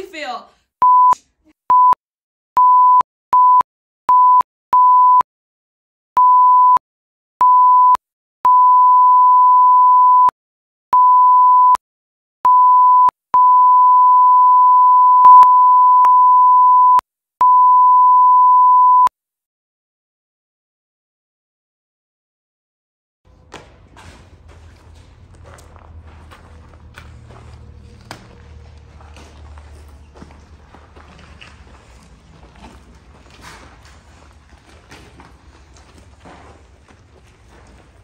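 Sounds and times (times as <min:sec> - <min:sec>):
censor bleeps: 0:00.8 - 0:02.0, 0:02.6 - 0:05.2, 0:06.2 - 0:06.8, 0:07.4 - 0:10.3, 0:11.0 - 0:11.8, 0:12.5 - 0:19.1.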